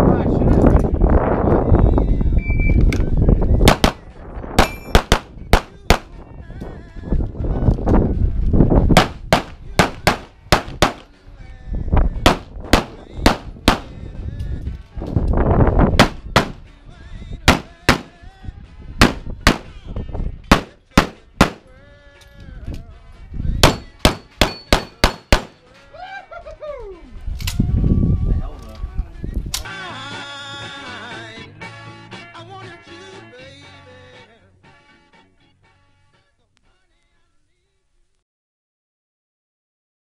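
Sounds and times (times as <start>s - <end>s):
rapid pistol shots: 3.7s - 4.0s, 4.6s - 6.1s, 9.0s - 11.1s, 12.3s - 14.0s, 16.0s - 16.6s, 17.5s - 18.2s, 19.0s - 19.7s, 20.5s - 21.7s, 23.6s - 25.6s.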